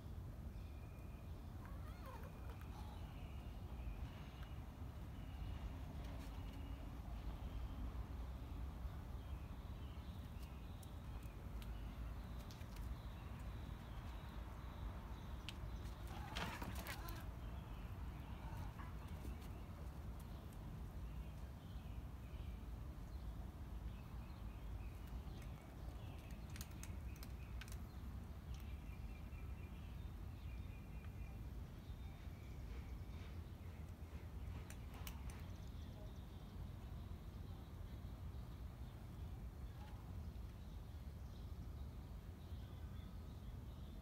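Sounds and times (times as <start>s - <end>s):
faint high chirps: 0.5s - 4.6s.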